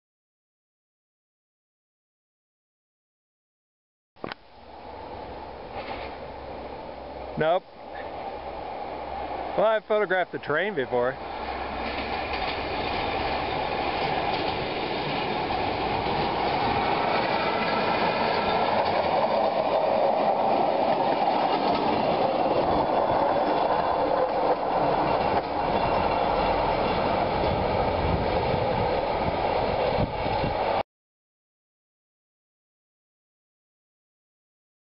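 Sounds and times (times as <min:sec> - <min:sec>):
rail car engine: 0:04.4 - 0:30.8
steel wheels clattering on track: 0:05.7 - 0:06.2, 0:11.3 - 0:28.9.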